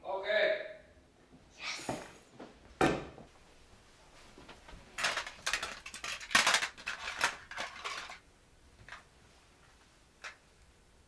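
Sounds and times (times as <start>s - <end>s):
cassette tapes clattering: 4.9s - 8.2s.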